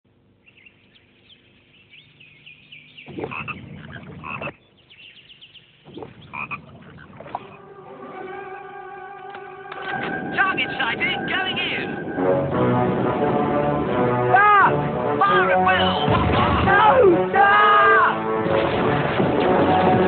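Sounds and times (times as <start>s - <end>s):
frogs croaking: 0.4s - 7.8s
music with held tones: 7.3s - 16.3s.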